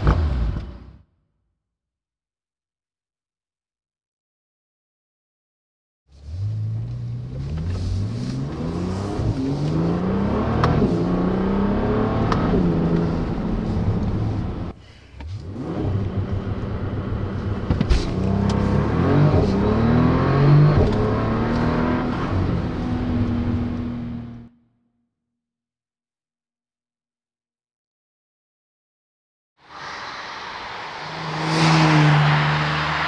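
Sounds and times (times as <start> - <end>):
car engine accelerating hard: 6.2 - 24.5, 29.7 - 33.0.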